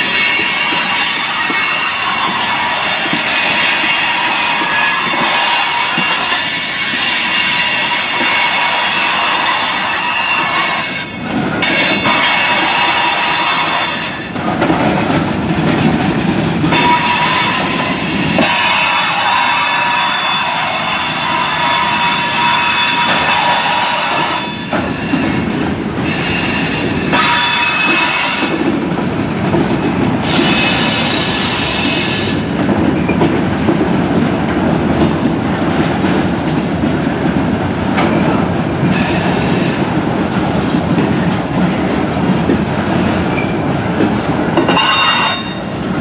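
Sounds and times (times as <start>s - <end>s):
freight cars rumbling and clattering: 11.1s - 18.6s, 22.4s - 46.0s.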